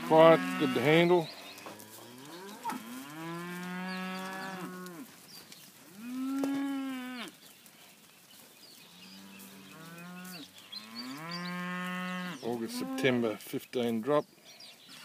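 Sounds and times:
steers mooing: 0.0s - 5.2s, 5.9s - 7.4s, 9.0s - 13.4s.

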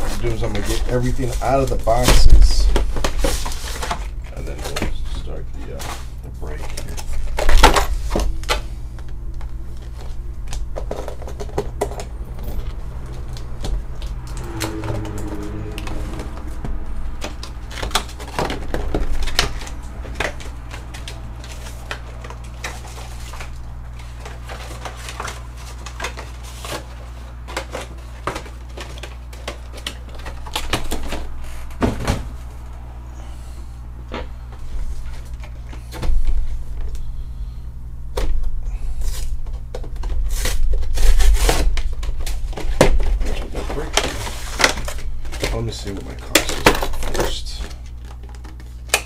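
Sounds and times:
steady low hum: 0.0s - 49.0s.

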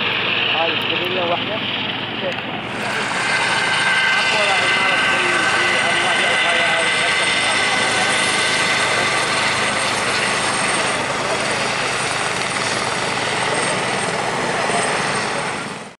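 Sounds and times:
helicopter flying past: 0.0s - 16.0s.

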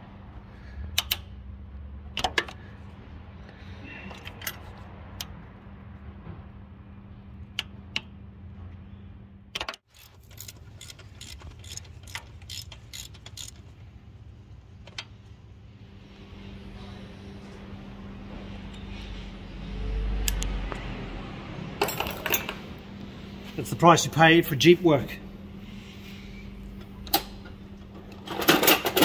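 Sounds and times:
ratchet wrench clicking: 1.0s - 1.3s, 9.9s - 13.7s
low hum: 4.8s - 28.2s
metal tools clinking: 9.9s - 13.7s, 21.8s - 22.6s.

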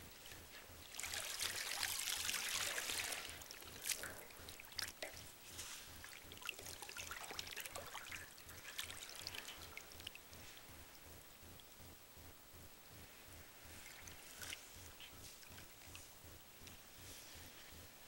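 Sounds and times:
water dripping: 0.2s - 12.0s
water splashing in metal tub: 0.9s - 5.2s, 6.0s - 10.2s.

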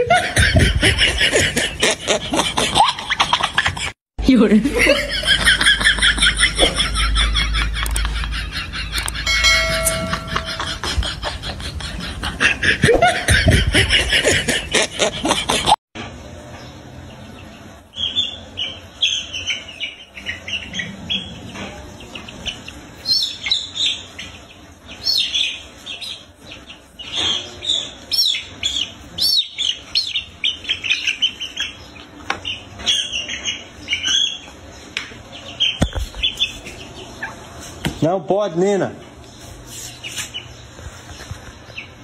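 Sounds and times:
chick peeping: 16.6s - 38.0s, 39.2s - 42.0s.

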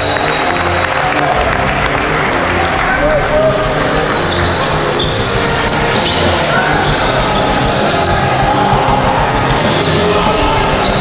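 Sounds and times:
spectator chatter: 0.0s - 11.0s
shoe squeaks: 3.7s - 8.3s, 9.3s - 11.0s.

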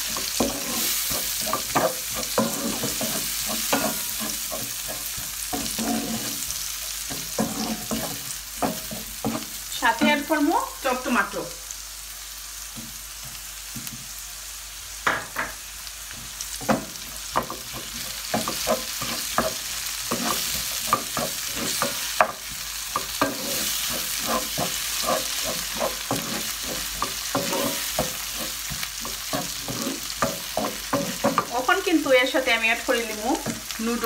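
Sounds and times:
vegetables sizzling in a pan: 0.0s - 34.0s
wooden spoon knocking and scraping: 0.1s - 6.5s, 15.1s - 31.6s.

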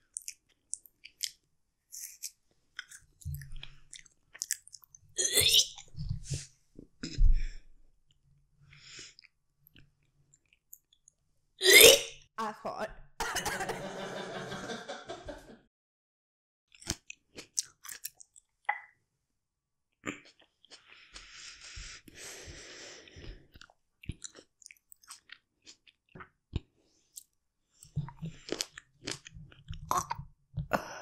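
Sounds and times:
fruit chewing crunches: 0.0s - 5.0s, 16.7s - 18.5s, 23.5s - 27.4s, 28.0s - 30.3s.

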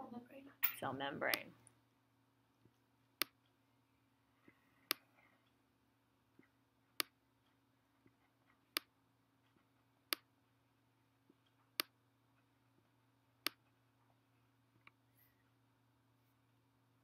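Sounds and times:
faint steady hum: 0.0s - 17.0s
stylus tapping on screen: 6.4s - 7.2s, 11.3s - 12.0s, 13.4s - 13.7s.

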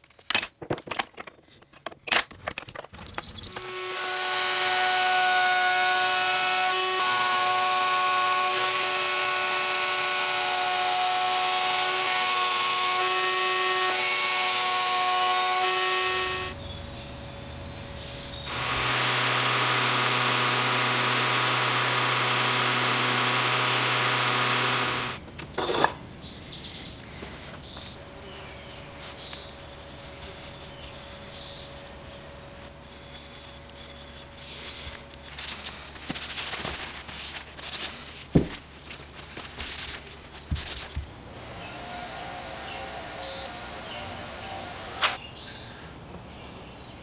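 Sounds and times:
loud mechanical whir: 18.2s - 25.2s, 41.3s - 45.2s.

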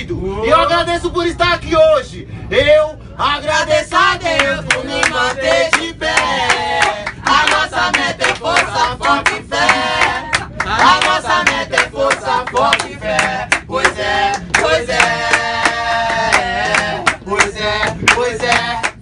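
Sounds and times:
voices singing a funk chant: 2.6s - 19.0s
hand claps: 4.4s - 19.0s.

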